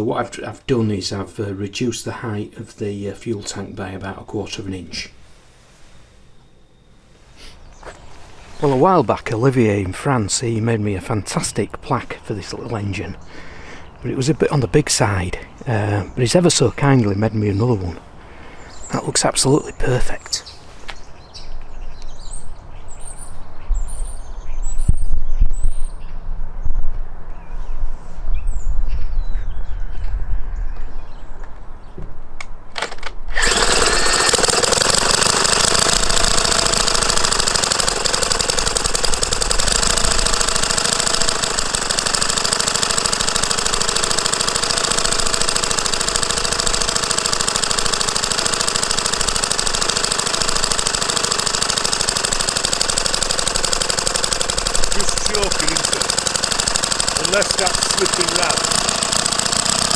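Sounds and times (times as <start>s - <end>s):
model engine running: 32.8s - 59.9s.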